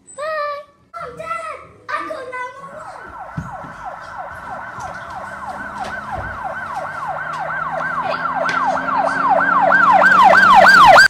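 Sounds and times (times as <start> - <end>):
siren yelping: 2.6 - 11.0.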